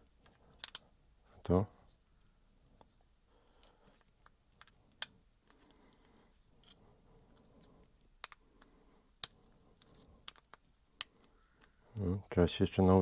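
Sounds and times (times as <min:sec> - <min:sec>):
sharp plastic clicks: 0:00.2 - 0:00.9, 0:08.2 - 0:11.8.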